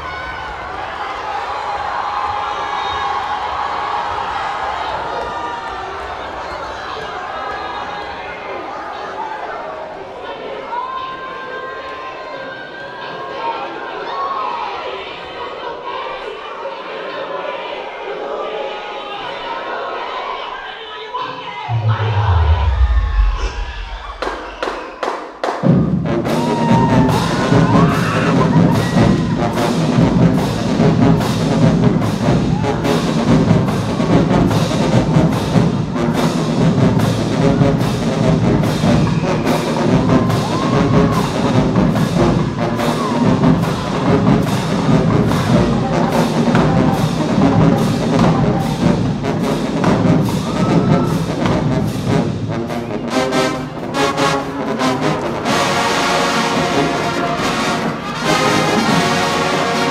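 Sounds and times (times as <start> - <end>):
brass held chords: 21.7 - 24.1, 41.2 - 59.9
percussion steady beat: 21.7 - 52.6
marching band playing: 21.7 - 59.9.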